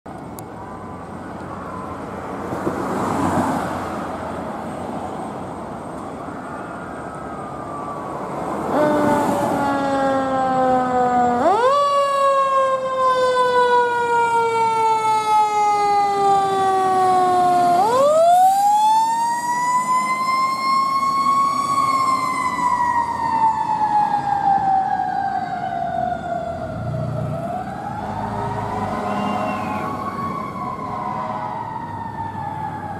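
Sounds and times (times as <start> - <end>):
fire engine siren wailing: 0.1 - 32.9.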